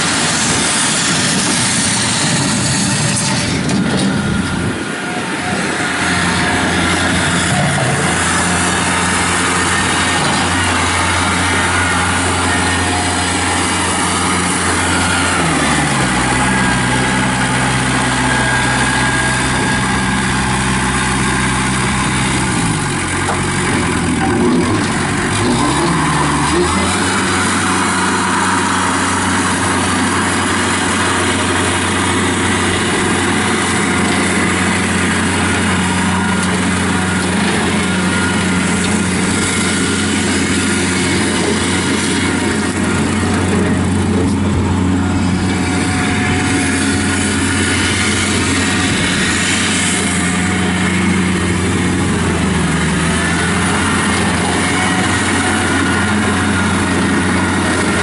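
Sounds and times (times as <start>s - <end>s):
tractor diesel engine running: 0.0s - 58.0s.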